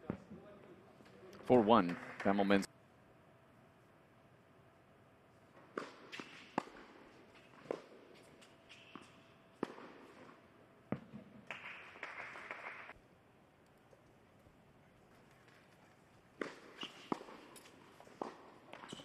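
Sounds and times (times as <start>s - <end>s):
light applause: 1.5s - 2.7s, 11.5s - 12.9s
tennis ball struck with rackets: 5.7s - 8.3s, 8.9s - 12.2s, 16.4s - 19.0s.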